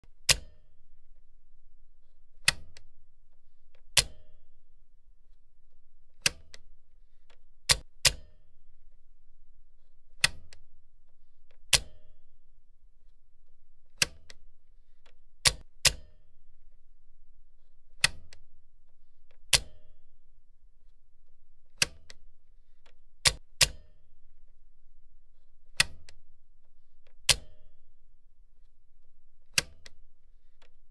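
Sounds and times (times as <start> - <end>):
faint low hum: 0.0 - 30.9
machine switch clicking: 0.3 - 0.7, 2.4 - 2.9, 3.7 - 4.4, 6.2 - 6.6, 7.7 - 8.4, 10.2 - 10.6, 11.5 - 12.2, 14.0 - 14.4, 15.4 - 16.2, 18.0 - 18.4, 19.3 - 19.9, 21.8 - 22.2, 23.2 - 24.0, 25.7 - 26.2, 27.0 - 27.7, 29.5 - 30.0.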